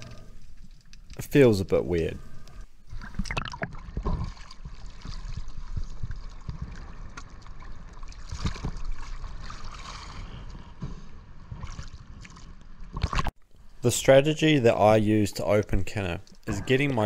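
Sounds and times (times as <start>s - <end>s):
sea water sloshing and gurgling: 2.5s - 13.4s.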